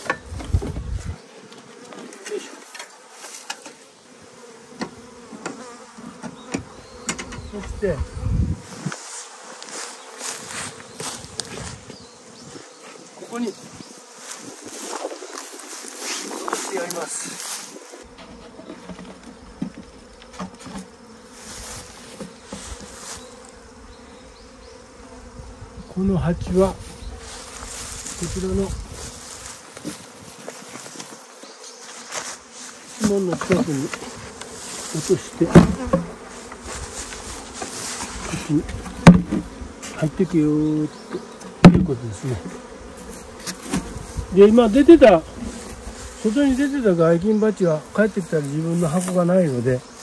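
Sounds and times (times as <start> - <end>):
bees buzzing: 0.0 - 50.0
knocks of wooden hive box: 4.7 - 7.8, 33.0 - 34.6, 35.3 - 40.0, 41.0 - 42.0, 42.6 - 44.0
low thud: 38.9 - 39.5, 41.6 - 42.0.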